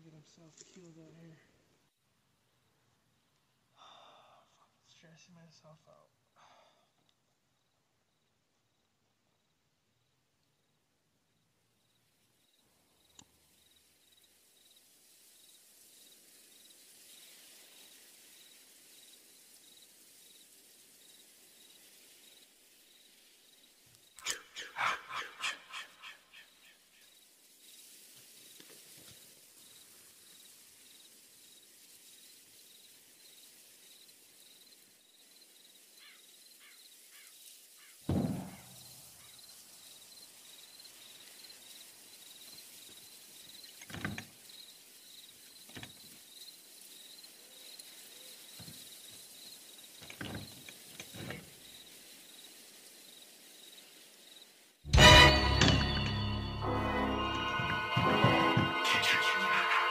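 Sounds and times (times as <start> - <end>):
insects trilling: 11.7 - 54.7
thumps: 38.1 - 38.8.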